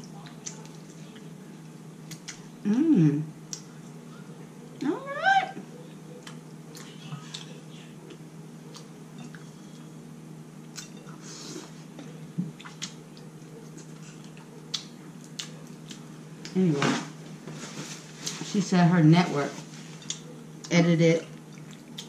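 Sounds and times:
person humming: 2.6 - 3.3
chewing and wet mouth sounds: 6.1 - 9.9, 12.0 - 16.6, 21.3 - 22.0.

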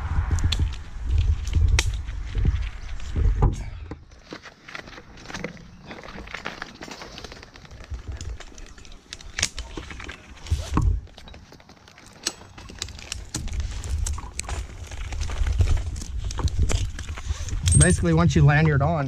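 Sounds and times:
low rumble on microphone: 0.0 - 4.0
metal rope hardware clicking: 17.5 - 18.1.

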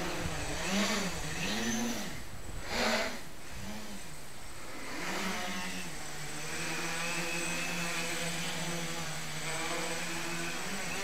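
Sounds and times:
quadcopter motors humming: 0.0 - 11.0.

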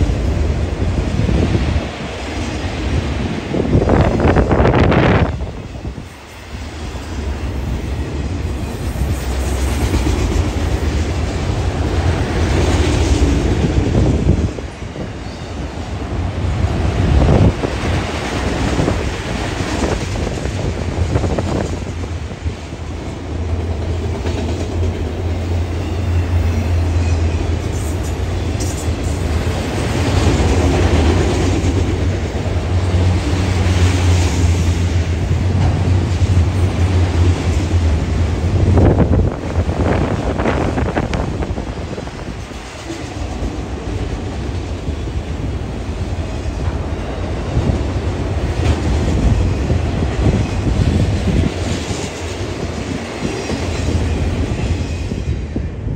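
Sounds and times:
freight train rumbling past: 0.0 - 55.9.

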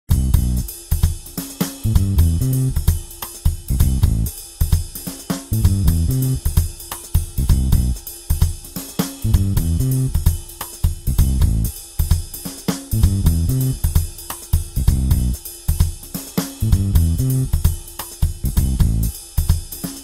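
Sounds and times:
bass line: 0.1 - 0.7, 1.8 - 2.8, 3.7 - 4.3, 5.5 - 6.4, 7.4 - 8.0, 9.2 - 10.2, 11.1 - 11.7, 12.9 - 13.8, 14.8 - 15.4, 16.6 - 17.5, 18.4 - 19.1
band playing: 1.8 - 2.8, 5.5 - 6.4, 9.2 - 10.2, 12.9 - 13.8, 16.6 - 17.5.

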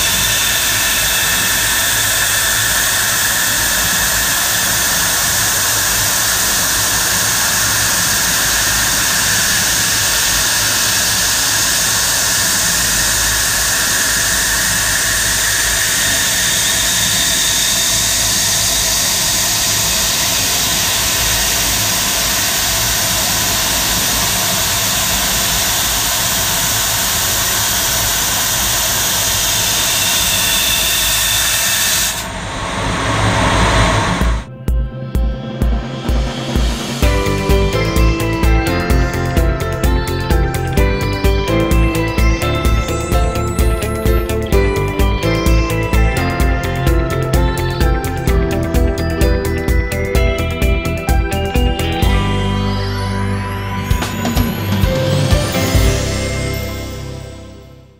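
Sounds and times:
loud gas hiss: 0.0 - 34.5.

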